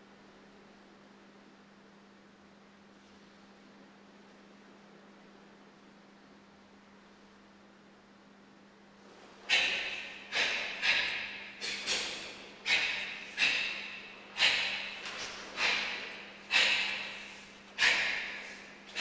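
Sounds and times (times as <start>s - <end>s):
sharp forceful exhalations: 9.4s - 19.0s.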